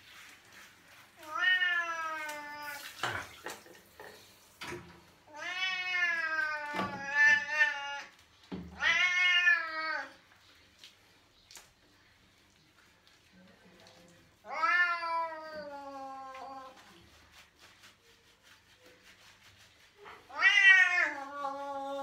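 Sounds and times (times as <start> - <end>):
cat meowing: 5.3 - 8.1, 8.7 - 10.2, 14.4 - 16.8, 20.1 - 22.0.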